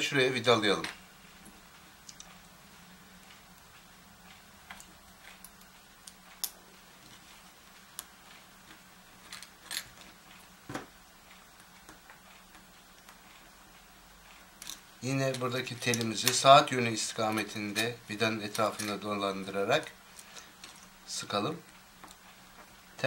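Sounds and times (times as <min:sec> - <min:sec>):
small clicks and light scrapes: 0:01.4 - 0:02.4, 0:04.3 - 0:10.5, 0:11.3 - 0:16.5.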